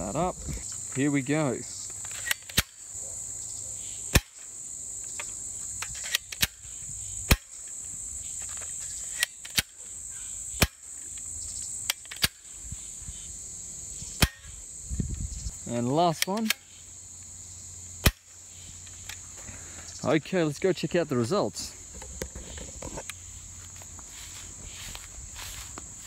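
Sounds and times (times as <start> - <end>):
insects droning: 0.0 - 26.0
toy dart gun shots: 4.1 - 4.4, 7.3 - 7.6, 10.6 - 10.8, 18.0 - 18.3.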